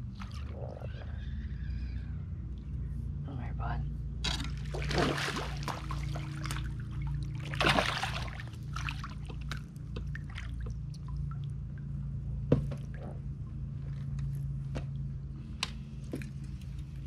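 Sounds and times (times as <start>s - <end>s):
water splashing and trickling: 0.0s - 1.0s, 4.3s - 13.4s.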